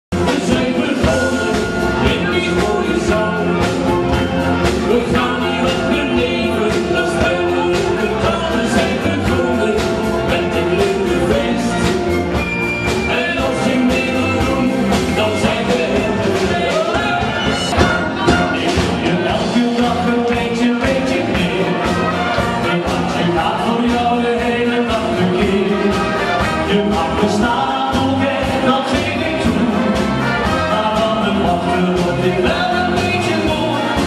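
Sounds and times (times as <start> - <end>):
wind band playing upbeat tune: 0.1 - 34.0.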